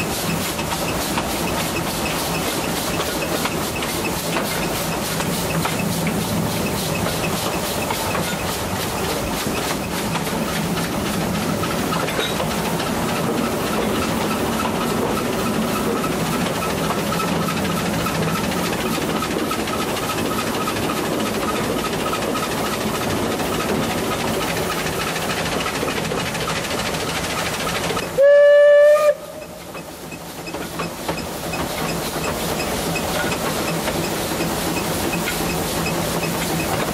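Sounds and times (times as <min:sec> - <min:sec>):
steam train rolling: 0:00.0 - 0:36.9
steam locomotive whistle: 0:28.0 - 0:29.6.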